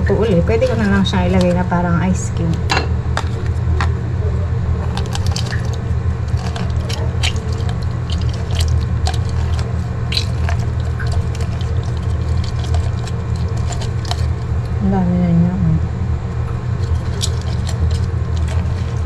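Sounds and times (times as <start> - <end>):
lemon squeezing on reamer: 0.0 - 1.7, 4.8 - 14.8, 16.5 - 19.0
steady low hum: 0.0 - 19.0
small clicks and crackles: 4.8 - 14.8, 16.8 - 19.0.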